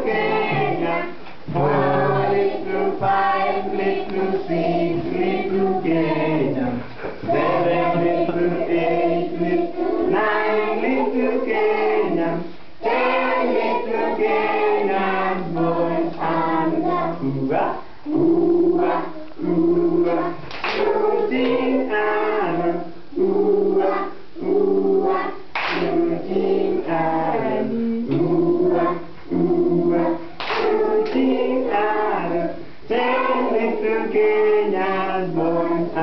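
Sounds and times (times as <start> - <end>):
children singing together: 0.0 - 36.0
hand claps: 20.5 - 21.6, 25.6 - 25.9, 30.4 - 31.3.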